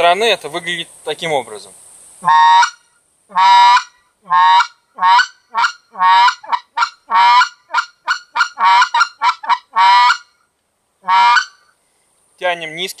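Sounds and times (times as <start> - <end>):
goose call honking and clucking: 2.2 - 10.4, 11.0 - 11.7.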